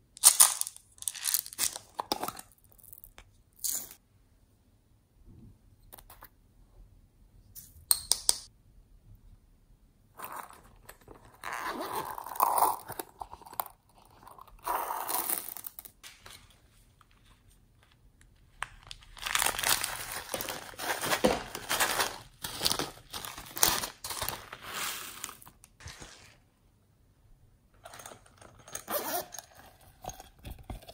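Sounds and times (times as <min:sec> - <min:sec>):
plastic bag crinkling: 0:18.6 - 0:26.4.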